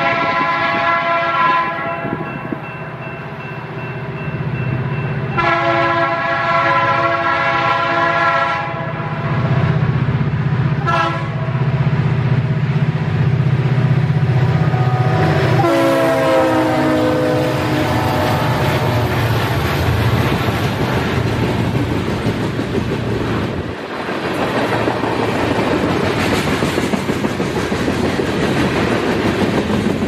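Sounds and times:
locomotive air horn blasts: 0.0s - 2.2s, 5.3s - 9.3s, 10.8s - 11.6s, 14.6s - 19.4s.

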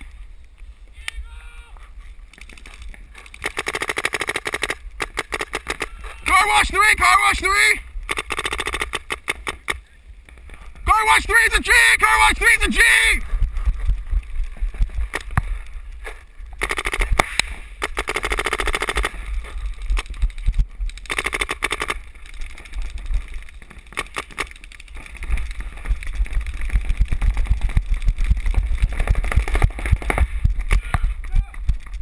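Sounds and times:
paintball marker firing: 3.4s - 5.9s, 8.1s - 9.8s, 16.6s - 19.2s.

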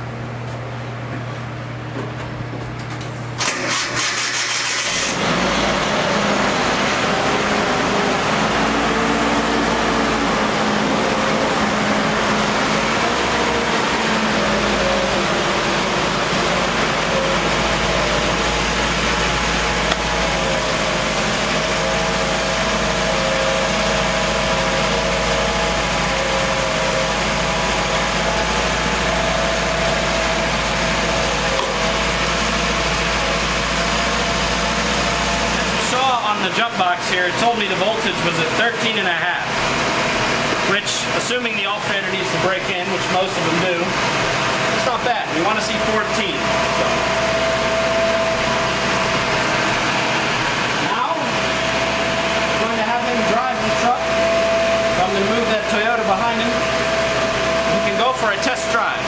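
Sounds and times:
engine cranking on starter: 3.4s - 23.0s
engine idling: 3.4s - 59.0s.

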